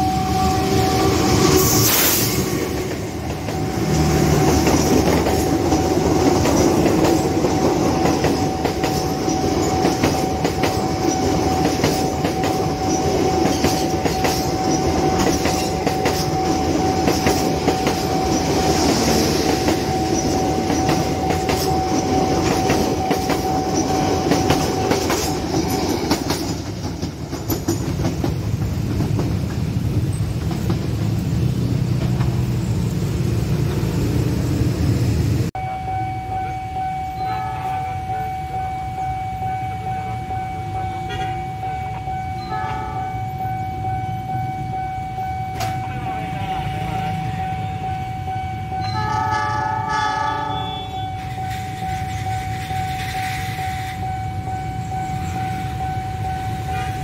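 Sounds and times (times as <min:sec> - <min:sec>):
steady high tone: 0:00.0 - 0:06.1, 0:35.5 - 0:57.0
train wheels clattering over rail joints: 0:02.0 - 0:31.2.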